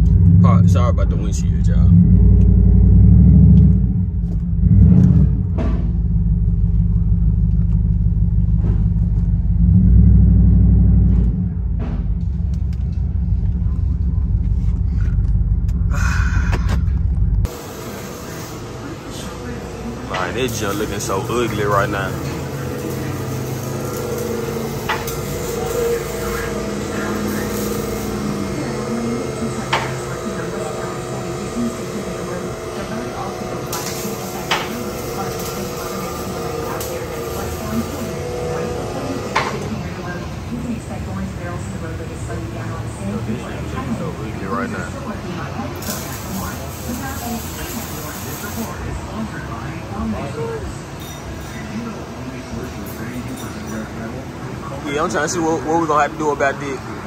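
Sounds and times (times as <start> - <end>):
shop machinery drone: 0.0 - 57.0
car engine choppy idle: 5.4 - 9.7, 11.1 - 18.4.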